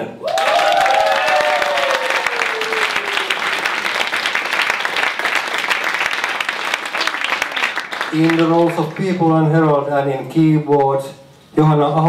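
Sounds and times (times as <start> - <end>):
crowd applauding: 0.2 - 9.5.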